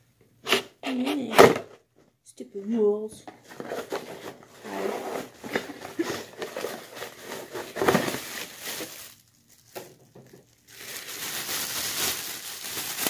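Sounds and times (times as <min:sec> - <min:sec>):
plastic bag crinkling: 0:04.6 - 0:13.0.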